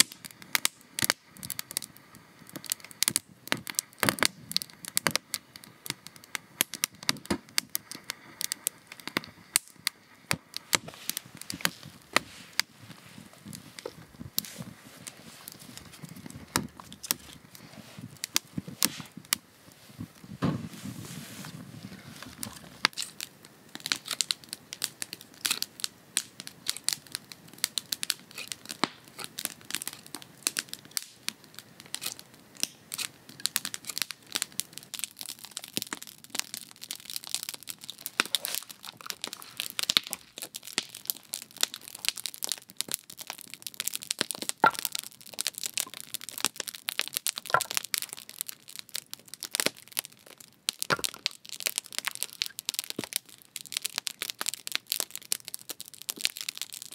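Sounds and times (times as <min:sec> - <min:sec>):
campfire crackling and popping: 0:00.0 - 0:56.9.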